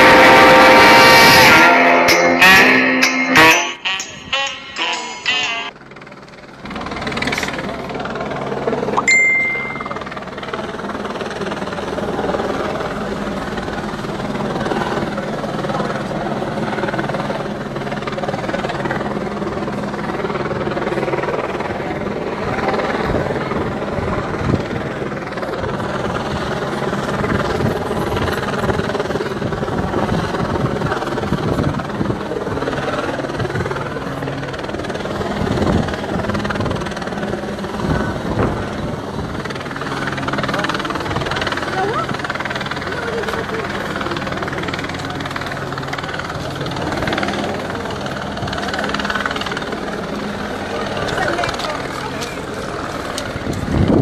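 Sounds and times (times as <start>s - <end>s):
low mechanical drone: 0.0s - 4.8s
crowd chatter: 1.7s - 54.0s.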